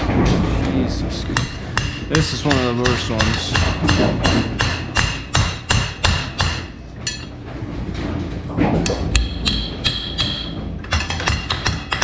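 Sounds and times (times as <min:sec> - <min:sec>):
hammer striking metal: 0:01.3 - 0:07.3, 0:08.8 - 0:12.0.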